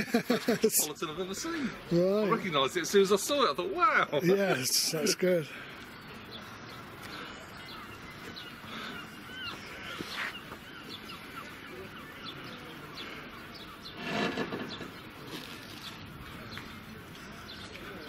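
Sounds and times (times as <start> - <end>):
birds chirping: 0.0 - 18.0
loud noisy bird call: 6.1 - 17.8.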